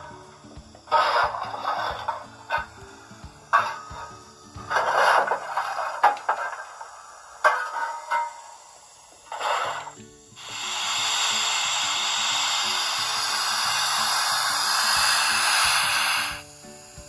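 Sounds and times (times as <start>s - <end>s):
steam hiss effects from small speaker: 0.0s - 17.0s.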